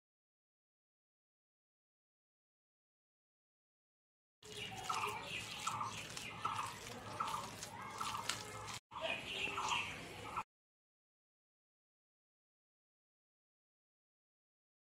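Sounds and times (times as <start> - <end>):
wet squelching of kneaded leaves: 4.4 - 9.9.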